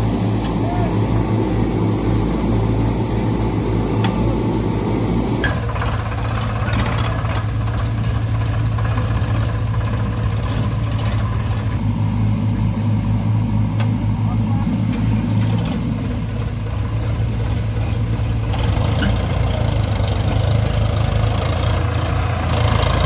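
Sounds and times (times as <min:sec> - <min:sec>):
backhoe diesel engine running: 0:00.0 - 0:23.0
tractor engine running: 0:00.0 - 0:23.0.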